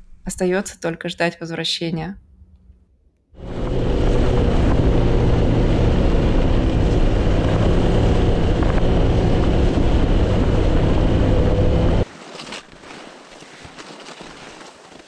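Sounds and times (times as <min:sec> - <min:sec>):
snowmobile engine droning: 0:03.4 - 0:12.1.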